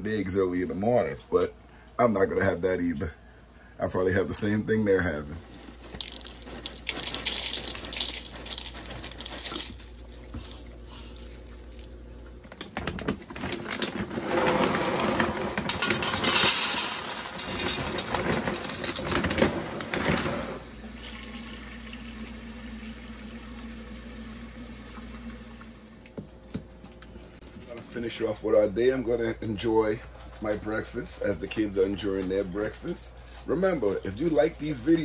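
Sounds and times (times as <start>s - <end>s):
cereal poured into bowl: 5.7s - 10.0s
kibble pouring into steel bowl: 5.9s - 9.9s
faucet running into steel bowl: 20.8s - 25.8s.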